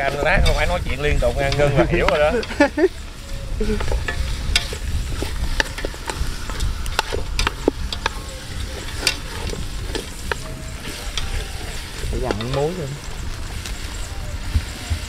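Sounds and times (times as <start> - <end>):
chicken sizzling in pot: 0.0 - 15.0
utensil scraping and clacking pot: 0.0 - 15.0.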